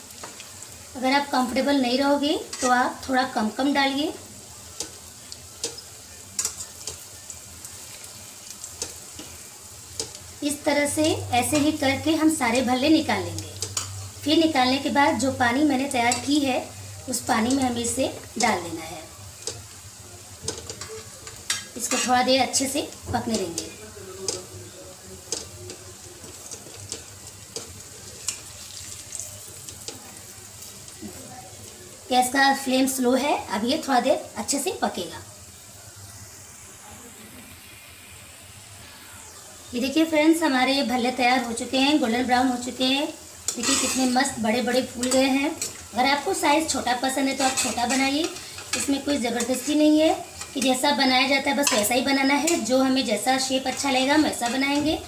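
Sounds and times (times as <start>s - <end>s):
food sizzling in hot oil: 0.0s - 55.0s
metal spoon clicking against pan: 6.4s - 7.0s, 13.6s - 14.0s, 47.4s - 49.7s.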